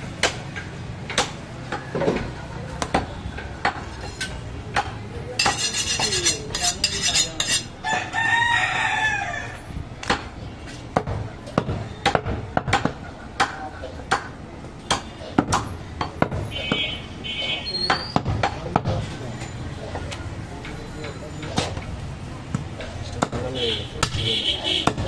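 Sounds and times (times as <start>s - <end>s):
rooster crowing: 7.8s - 9.7s
cleaver chopping on wooden block: 11.0s - 16.9s, 23.2s - 24.2s.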